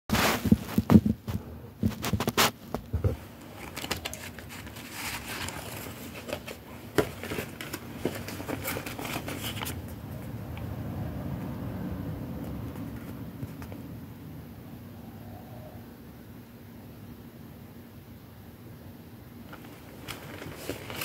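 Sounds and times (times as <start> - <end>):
paper rustling: 0.1 - 10.3, 19.5 - 21.0
knocks and handling noise: 0.1 - 10.7, 12.4 - 13.9, 19.5 - 21.0.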